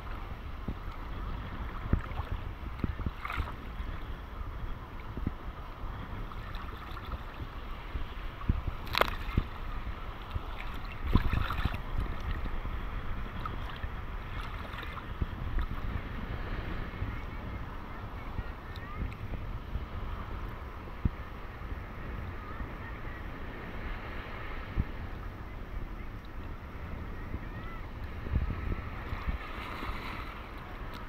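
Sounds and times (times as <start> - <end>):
wind rumble on microphone: 0.0 - 31.0
sea water sloshing and lapping: 0.9 - 3.8, 6.2 - 12.6, 13.3 - 16.0, 29.0 - 31.0.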